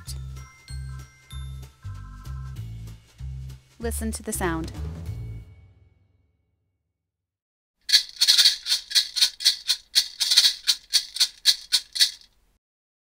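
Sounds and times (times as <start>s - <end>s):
maracas shaking: 7.9s - 12.3s.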